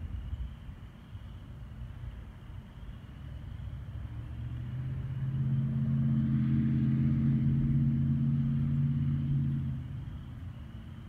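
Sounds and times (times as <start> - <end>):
low engine hum: 0.0 - 11.0.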